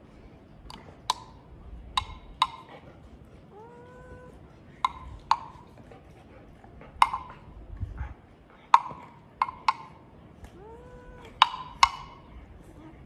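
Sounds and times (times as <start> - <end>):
castanet clacking: 2.0 - 2.7, 8.7 - 10.1, 11.3 - 12.3.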